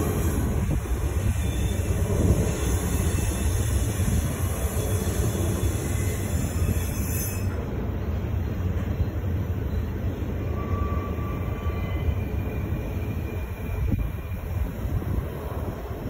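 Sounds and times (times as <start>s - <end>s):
freight train wheels rumbling: 0.0s - 16.0s
thin wheel squeal: 1.2s - 7.6s.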